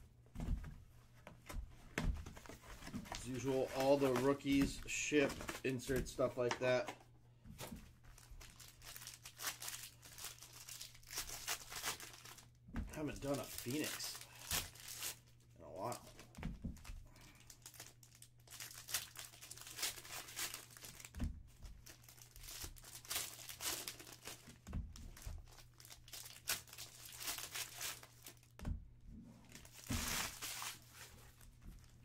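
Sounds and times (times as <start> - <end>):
foil wrappers crinkling and tearing: 3.1 - 6.3, 8.1 - 16.2, 17.1 - 28.5, 29.6 - 32.0.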